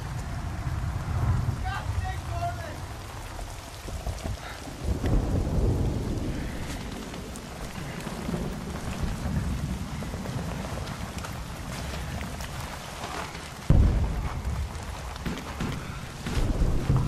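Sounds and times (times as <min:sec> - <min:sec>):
rumble of explosions and shellfire: 0:00.0 - 0:17.0
faint sharp cracks: 0:10.8 - 0:17.0.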